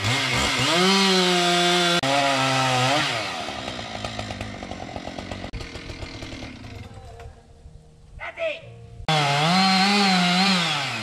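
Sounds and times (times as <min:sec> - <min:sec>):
chainsaw cutting wood: 0:00.0 - 0:07.3, 0:09.1 - 0:11.0.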